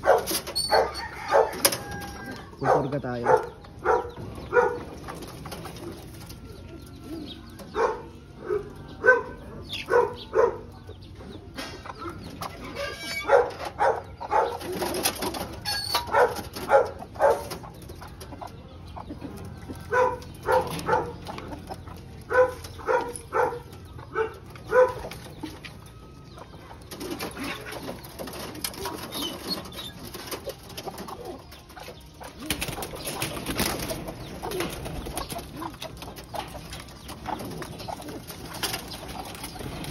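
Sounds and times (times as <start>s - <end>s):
pigeons cooing: 0.0s - 39.9s
wings flapping: 32.3s - 39.9s.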